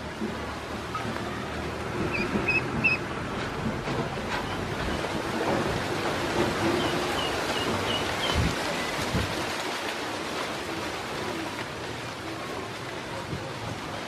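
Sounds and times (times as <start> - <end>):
ducklings splashing in water: 0.0 - 14.0.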